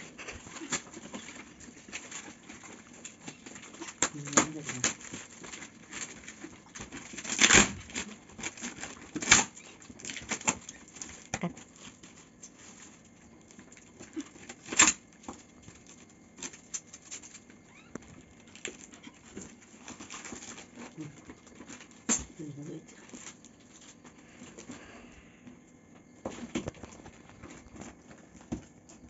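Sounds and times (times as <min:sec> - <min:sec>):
packing tape ripping: 0:03.2 - 0:13.0, 0:14.0 - 0:15.2
cardboard rustling and clicks: 0:26.3 - 0:29.0.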